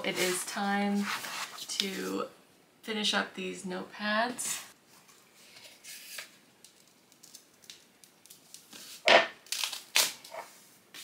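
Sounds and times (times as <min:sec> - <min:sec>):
paper and book cover rustles: 0:00.0 - 0:02.2, 0:04.9 - 0:07.4, 0:08.3 - 0:11.0.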